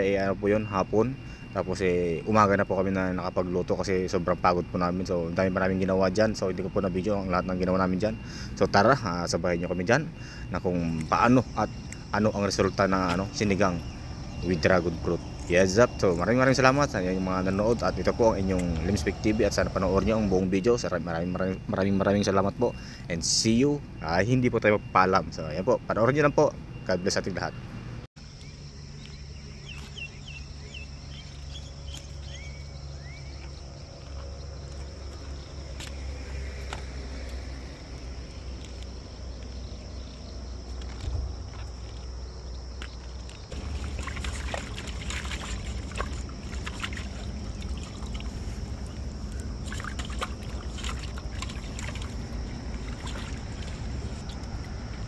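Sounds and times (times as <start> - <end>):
high insect drone: 0.0 - 25.8, 28.2 - 55.0
steady low rumble: 28.4 - 55.0.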